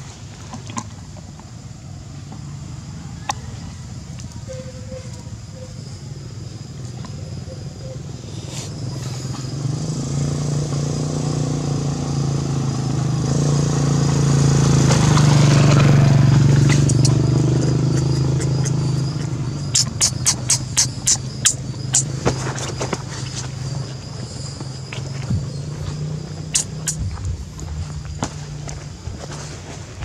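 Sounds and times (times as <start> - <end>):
vehicle engine passing: 7.3 - 29.8
sharp clicks: 16.7 - 22.1, 26.5 - 27.1.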